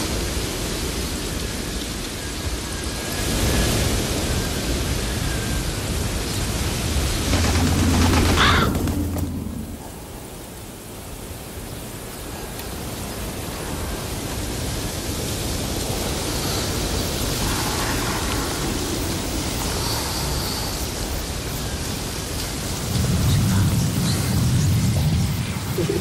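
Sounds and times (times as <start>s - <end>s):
steady rushing noise: 0.1s - 26.0s
deep rumble: 6.8s - 10.4s, 22.5s - 26.0s.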